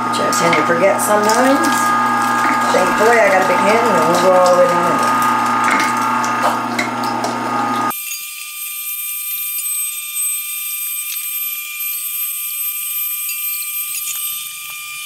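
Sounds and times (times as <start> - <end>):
meat grinder motor hum: 0.0 - 15.0
thin high whine: 7.6 - 15.0.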